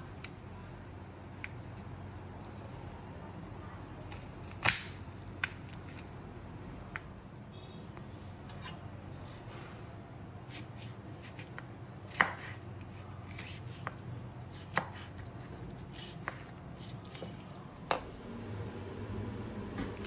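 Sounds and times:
knife chopping on cutting board: 10.5 - 15.3, 15.9 - 17.3.

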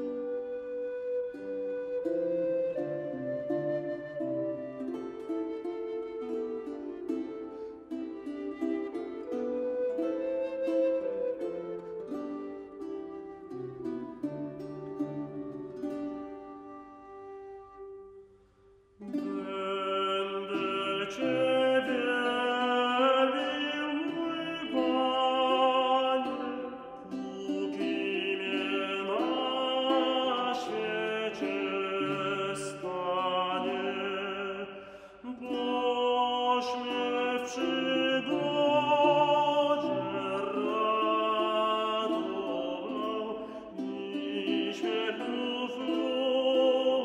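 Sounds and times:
vocal ensemble singing: 19.0 - 47.0.

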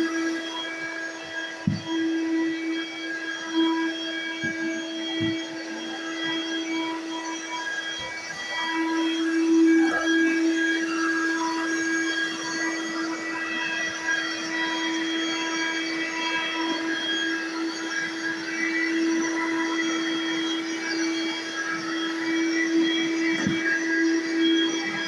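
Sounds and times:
vacuum cleaner running: 0.0 - 25.0
vacuum head on hardwood floor: 1.5 - 1.9, 4.4 - 5.7, 23.3 - 23.7.

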